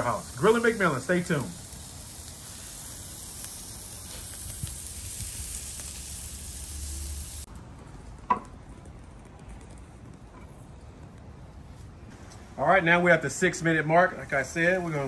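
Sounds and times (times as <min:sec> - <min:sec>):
steaks sizzling on grill: 0:00.0 - 0:07.5.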